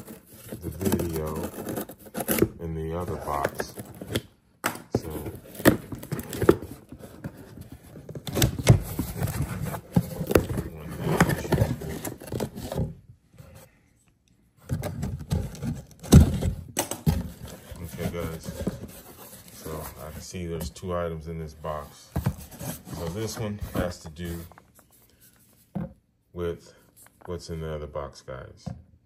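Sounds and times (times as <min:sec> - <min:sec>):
packaging scraping and tearing: 0:00.0 - 0:04.2.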